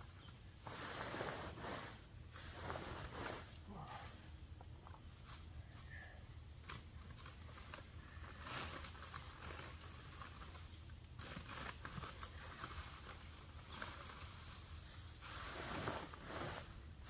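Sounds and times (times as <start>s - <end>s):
dry leaves rustling into bag: 5.1s - 17.0s.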